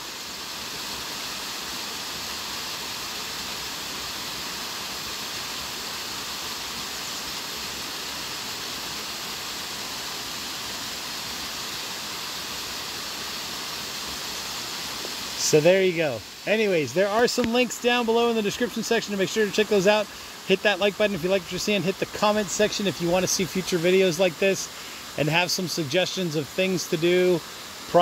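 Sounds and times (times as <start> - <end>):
waterfall splashing onto rocks: 0.0 - 28.0.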